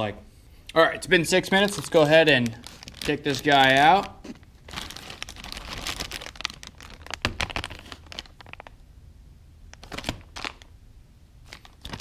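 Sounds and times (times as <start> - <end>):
plastic packaging crinkling: 1.5 - 8.8, 9.7 - 10.7, 11.4 - 12.0.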